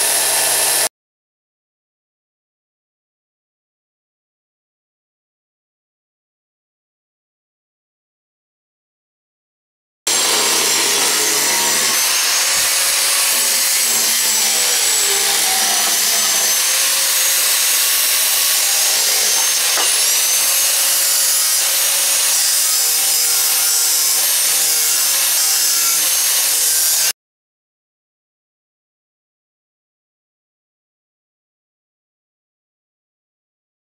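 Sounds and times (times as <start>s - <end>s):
angle grinder cutting steel: 0.0s - 0.9s, 10.1s - 27.1s.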